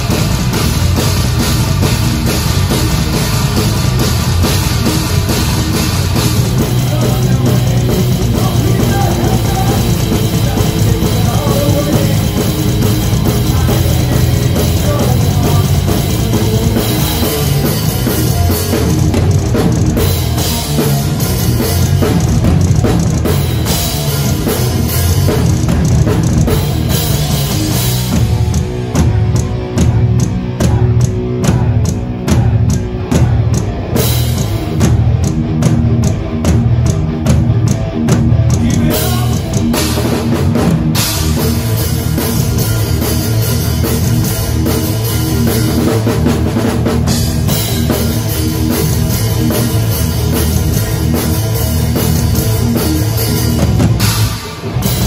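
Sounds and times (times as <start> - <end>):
heavy metal band playing: 0.0 - 55.0
bass drum thumps: 28.0 - 33.8.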